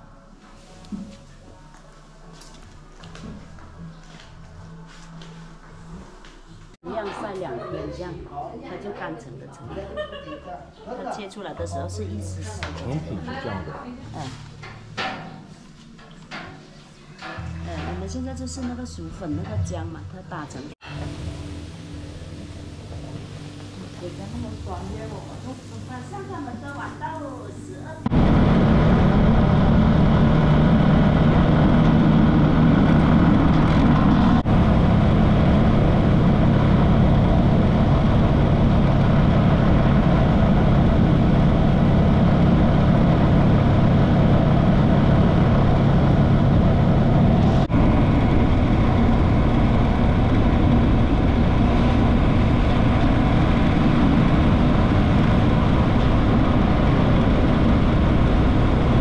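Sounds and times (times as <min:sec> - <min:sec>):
motorcycle engine drone: 0:28.0 - 0:59.0
rush of road noise: 0:28.1 - 0:59.0.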